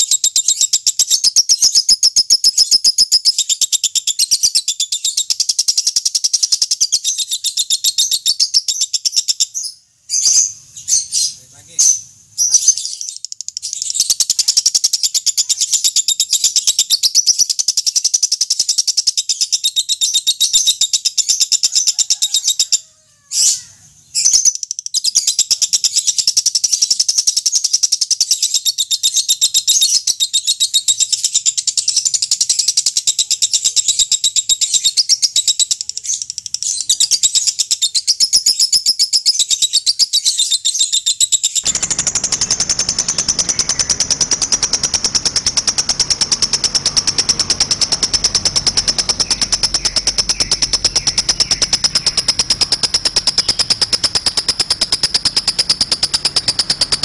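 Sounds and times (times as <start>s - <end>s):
bird chattering trill: 23.4s - 57.0s.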